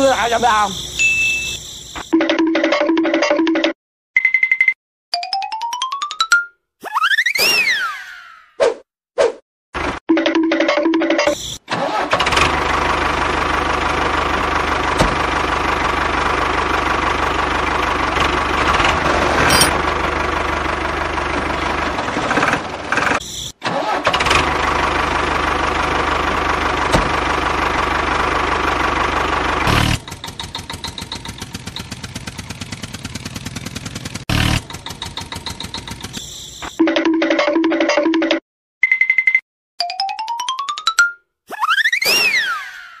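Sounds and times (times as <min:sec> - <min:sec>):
tractor engine drone: 0:11.2 - 0:36.7
engine pulsing: 0:11.7 - 0:36.3.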